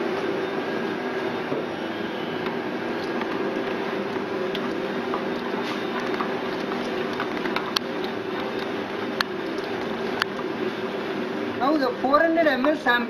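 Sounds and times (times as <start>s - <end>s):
machine hum: 0.0s - 13.0s.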